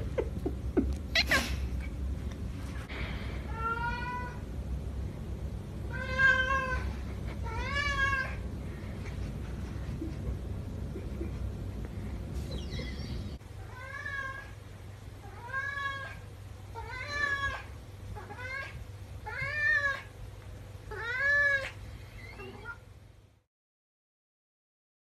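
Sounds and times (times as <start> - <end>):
cat meowing: 5.9 - 8.4, 20.9 - 22.8.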